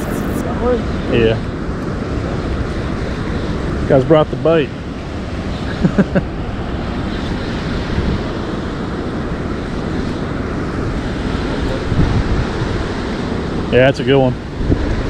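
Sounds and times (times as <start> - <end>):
turbulent water rushing: 0.0 - 15.0
wind buffeting microphone: 6.3 - 15.0.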